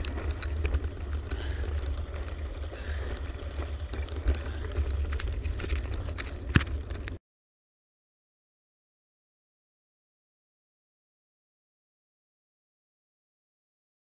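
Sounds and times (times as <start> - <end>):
bike tyres rolling on tarmac: 0.0 - 7.2.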